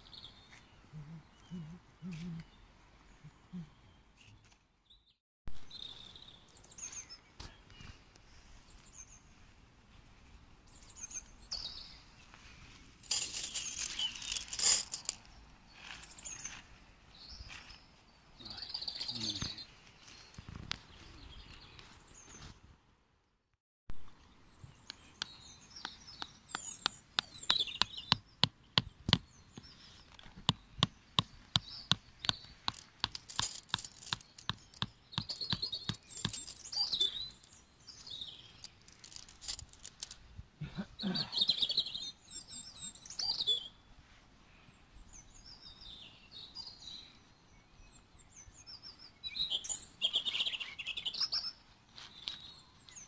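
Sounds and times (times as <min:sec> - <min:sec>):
small birds chirping: 0:00.0 - 0:09.5, 0:10.7 - 0:22.5, 0:24.1 - 0:43.9, 0:44.5 - 0:53.0.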